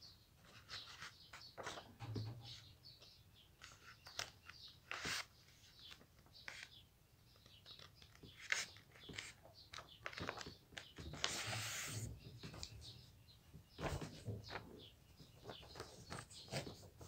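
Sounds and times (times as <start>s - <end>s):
paper rustling and crackling: 7.8s - 12.7s.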